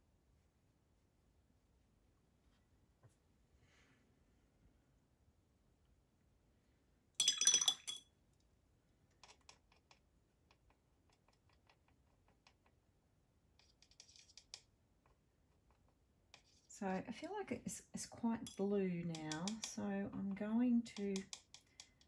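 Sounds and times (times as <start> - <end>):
paintbrush clinking against glass jar: 7.2 - 8.0, 18.4 - 19.8.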